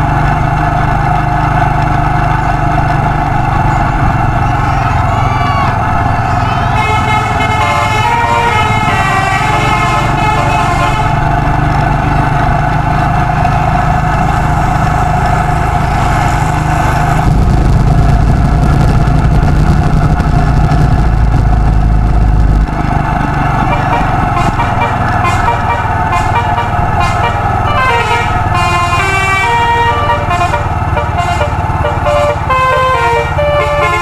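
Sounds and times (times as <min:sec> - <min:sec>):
road and wind rumble: 0:00.0 - 0:34.0
musical bus air horn: 0:04.4 - 0:11.5, 0:23.6 - 0:34.0.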